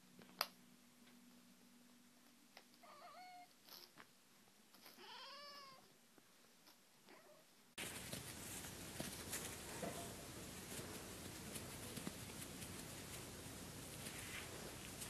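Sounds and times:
cat meowing faintly: 0:02.8 - 0:03.6, 0:04.9 - 0:05.9.

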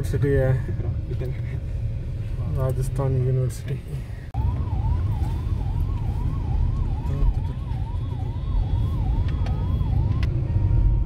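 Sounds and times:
road traffic rumble: 0:00.0 - 0:11.0
emergency vehicle siren: 0:04.4 - 0:11.0.

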